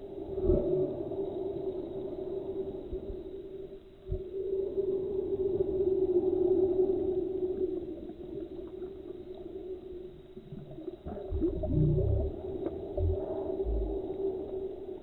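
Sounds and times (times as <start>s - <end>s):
deep drone: 7.1s - 15.0s.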